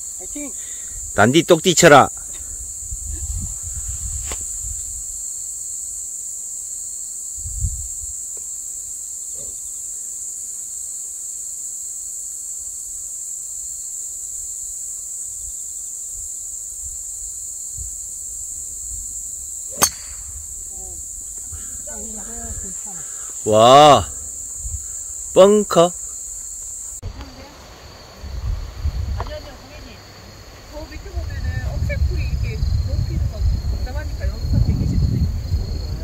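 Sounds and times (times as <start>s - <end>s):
insects chorus: 0.0s - 36.0s
wind on microphone: 2.4s - 5.2s, 7.4s - 8.2s, 17.7s - 22.8s, 24.0s - 25.0s, 28.2s - 29.5s, 30.8s - 36.0s
golf club striking ball: 19.7s - 20.4s.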